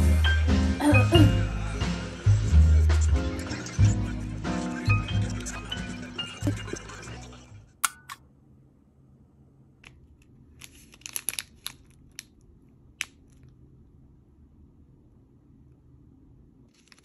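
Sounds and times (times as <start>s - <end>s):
faint room hum: 5.0s - 17.0s
plastic wrapper crinkling: 10.5s - 12.4s, 16.7s - 17.0s.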